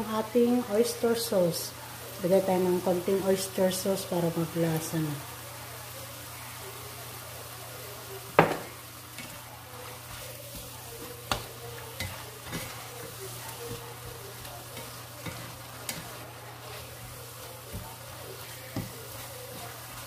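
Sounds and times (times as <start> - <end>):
food sizzling in frying pan: 0.0 - 20.0
spatula scraping against pan: 9.1 - 20.0.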